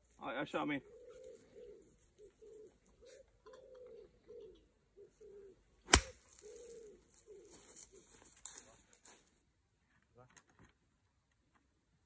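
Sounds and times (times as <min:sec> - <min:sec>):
bird cooing: 0:00.8 - 0:08.1
golf club striking ball: 0:05.9 - 0:06.2.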